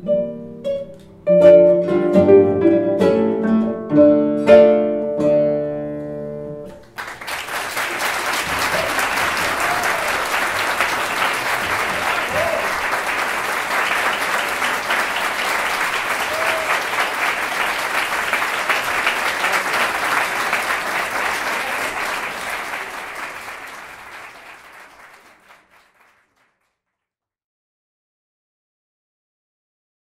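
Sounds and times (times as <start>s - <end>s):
audience applauding: 6.8s - 26.8s.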